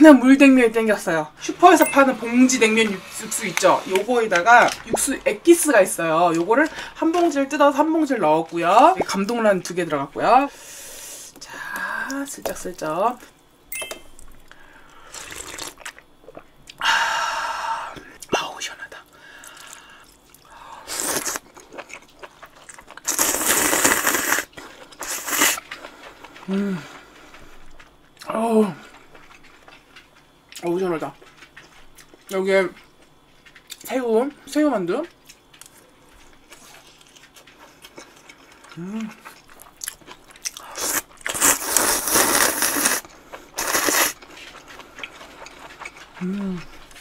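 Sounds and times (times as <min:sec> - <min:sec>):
person slurping noodles: 0:15.1 - 0:15.8, 0:23.1 - 0:25.6, 0:40.7 - 0:43.0, 0:43.6 - 0:44.2.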